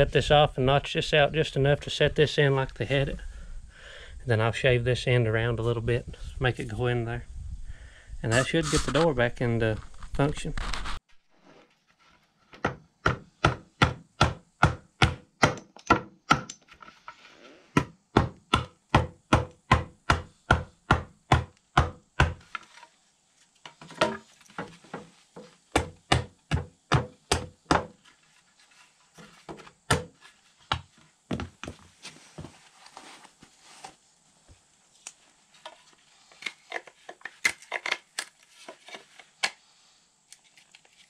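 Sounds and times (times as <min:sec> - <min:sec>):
hatchet chopping wooden stick: 0:12.6 - 0:16.6, 0:17.8 - 0:22.4, 0:25.7 - 0:28.0.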